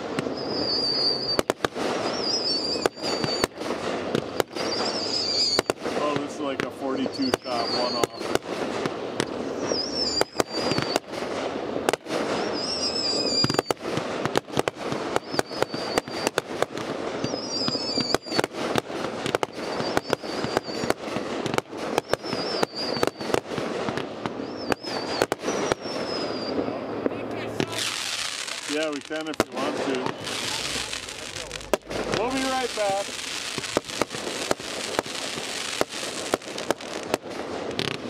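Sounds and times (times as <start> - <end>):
fireworks launches and bursts: 0.0 - 38.0
wavering high whistle: 0.2 - 3.6, 4.3 - 5.8, 7.0 - 8.2, 9.3 - 11.0, 12.3 - 13.8, 15.1 - 16.4, 17.2 - 18.5, 19.4 - 21.0, 21.9 - 23.4, 24.4 - 26.8, 27.8 - 34.6.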